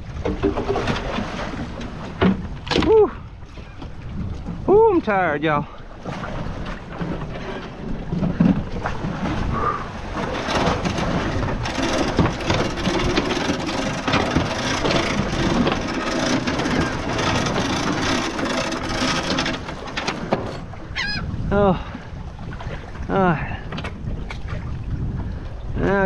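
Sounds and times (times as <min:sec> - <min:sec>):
water churning against boat: 0:00.0 - 0:26.0
wind buffeting microphone: 0:00.0 - 0:26.0.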